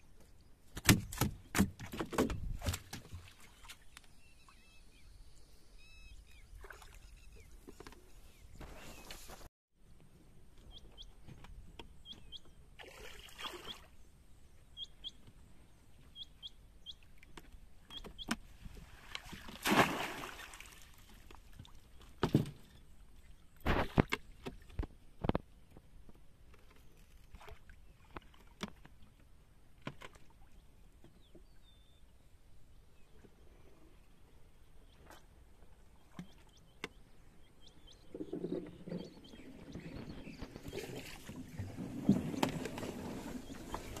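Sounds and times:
water splashing and sloshing: 0.7s - 4.2s, 6.5s - 9.5s, 12.7s - 14.0s, 17.0s - 31.5s, 35.0s - 37.4s, 38.0s - 44.0s
big splash: 19.3s - 20.8s.

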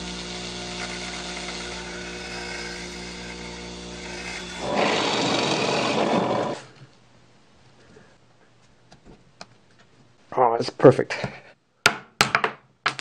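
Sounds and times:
bench grinder motor hum: 0.0s - 6.7s
drill bit grinding against wheel: 0.0s - 6.7s
drill press boring into wood: 0.0s - 6.7s.

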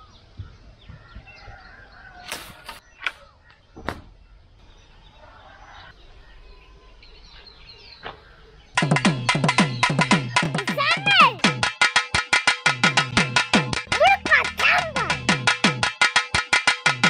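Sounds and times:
birds chirping: 0.0s - 11.5s.

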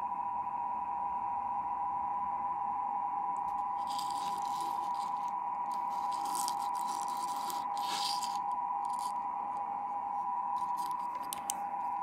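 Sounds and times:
steady electronic tone: 3.4s - 12.0s.

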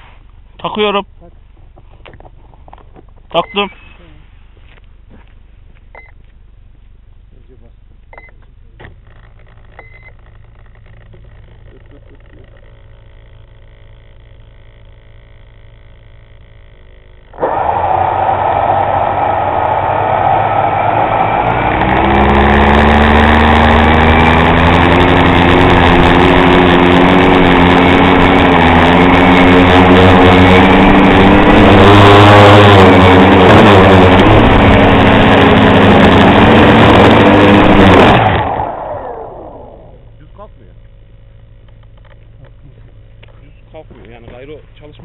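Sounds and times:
drone motors and propellers whining: 9.3s - 40.5s.

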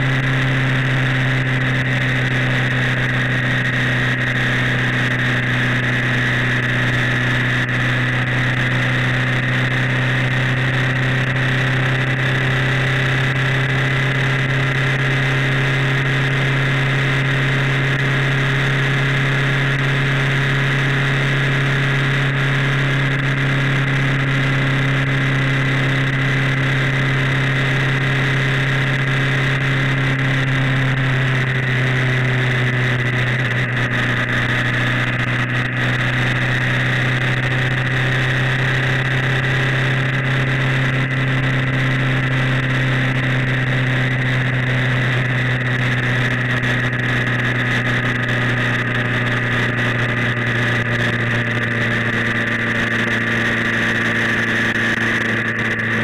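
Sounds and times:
vehicle engine droning: 0.0s - 56.0s.

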